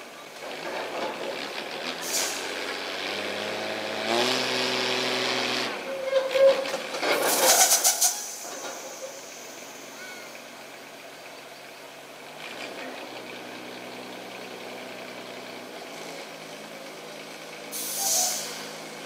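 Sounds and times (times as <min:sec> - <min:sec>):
diesel truck engine: 0:00.0 - 0:19.0
air brake hiss: 0:02.0 - 0:02.5, 0:07.3 - 0:10.1, 0:17.7 - 0:18.8.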